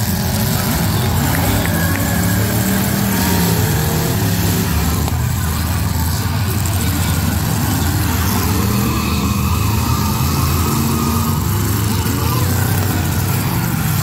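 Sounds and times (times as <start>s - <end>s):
car engines revving hard: 0.0s - 14.0s.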